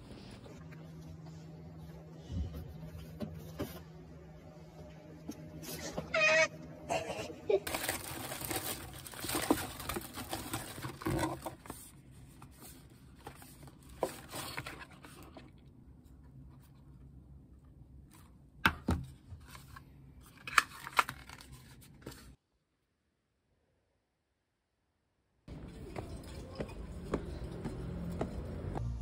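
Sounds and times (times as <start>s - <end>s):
packaging rustling and crinkling: 7.7s - 15.5s.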